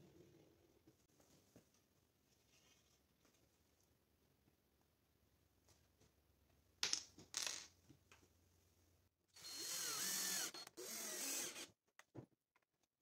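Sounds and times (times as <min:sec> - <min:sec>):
cordless drill driving screw: 0:09.4 - 0:11.7.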